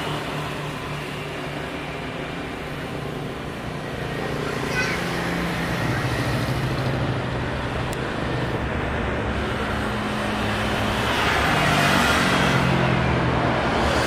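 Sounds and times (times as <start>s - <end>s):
jet engines rushing: 0.0s - 14.0s.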